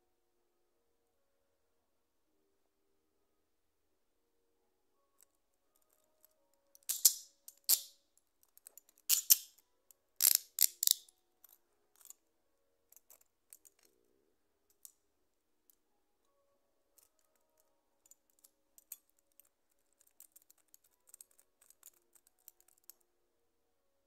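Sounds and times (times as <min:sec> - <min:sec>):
handcuff ratchet clicking: 0:06.8 - 0:09.6, 0:10.2 - 0:11.1, 0:12.9 - 0:13.9, 0:18.1 - 0:23.0.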